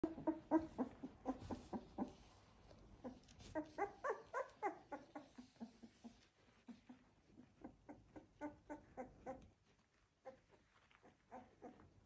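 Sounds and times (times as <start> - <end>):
puppies squeaking and whimpering: 0.0 - 2.2, 3.0 - 9.5.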